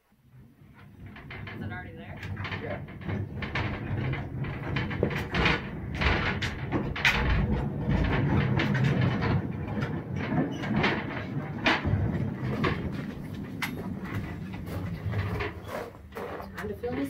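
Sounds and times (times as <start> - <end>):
steel wheels clacking on rails: 0.8 - 17.0
low rumble: 1.0 - 16.3.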